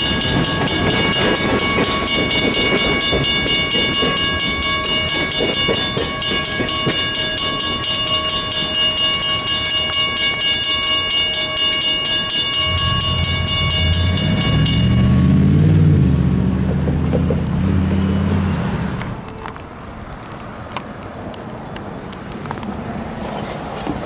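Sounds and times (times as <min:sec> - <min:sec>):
railroad crossing bells ringing: 0:00.0 - 0:16.8
low engine drone: 0:12.4 - 0:19.2.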